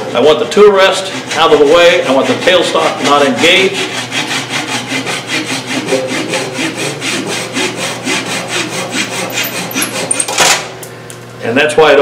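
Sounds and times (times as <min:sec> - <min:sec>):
hand saw cutting wood: 0:00.0 - 0:10.7.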